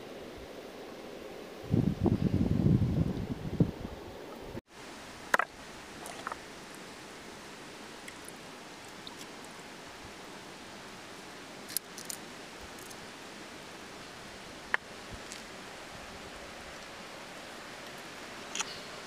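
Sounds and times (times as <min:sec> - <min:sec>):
river water running among stones: 0:04.8 - 0:19.0.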